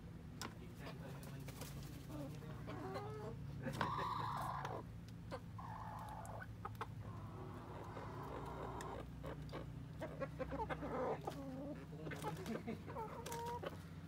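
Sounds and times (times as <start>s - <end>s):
chickens clucking: 0.4s - 14.0s
chicken squawking: 2.0s - 13.8s.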